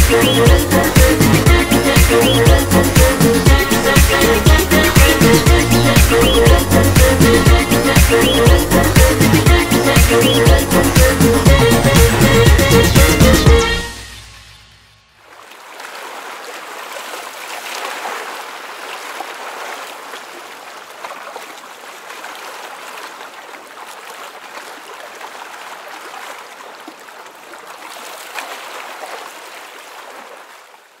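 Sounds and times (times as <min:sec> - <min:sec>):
music: 0:00.0 - 0:15.0.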